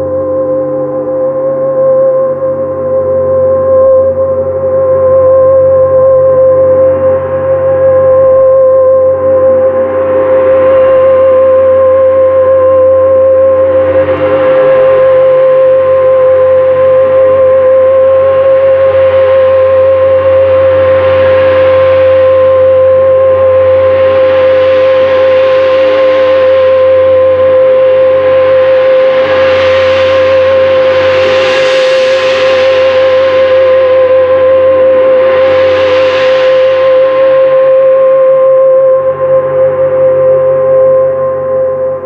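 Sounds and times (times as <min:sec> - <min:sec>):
theremin steady note: 0:00.0 - 0:42.0
gong played by friction: 0:22.4 - 0:42.0.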